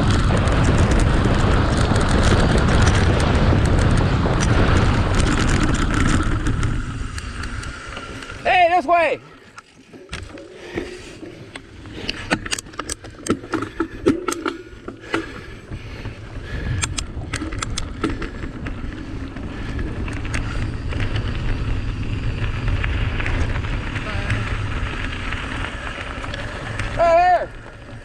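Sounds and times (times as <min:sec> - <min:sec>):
wind on microphone: 0:00.0 - 0:08.5
bike knocking and rattling: 0:00.0 - 0:28.0
tyres rumbling on trail: 0:00.0 - 0:28.0.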